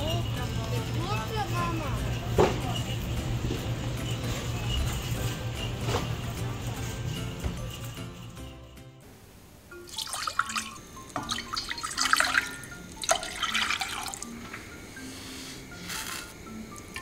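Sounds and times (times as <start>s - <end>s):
light background music: 0.0s - 17.0s
tap water splashing: 10.0s - 14.6s.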